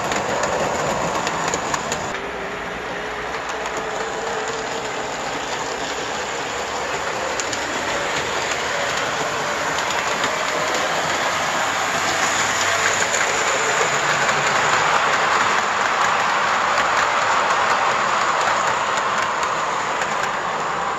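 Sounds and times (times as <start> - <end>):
metal wheels rattling on rails: 0.0 - 2.2, 3.0 - 20.9.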